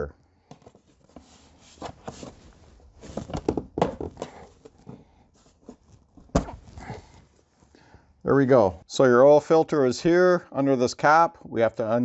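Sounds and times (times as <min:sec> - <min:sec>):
plastic cover clicking and rubbing: 0:00.5 - 0:06.9.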